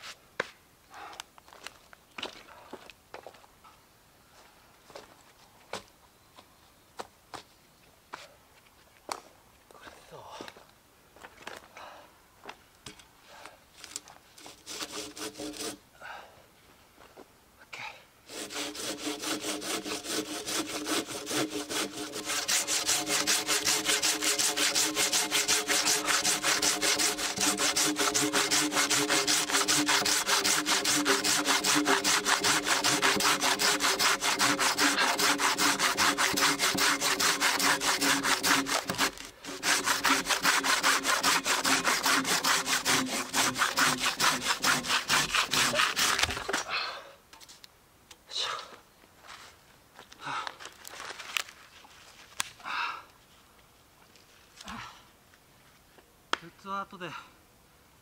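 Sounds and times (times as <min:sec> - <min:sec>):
hand saw cutting log: 0:14.4 - 0:15.8, 0:18.3 - 0:46.7.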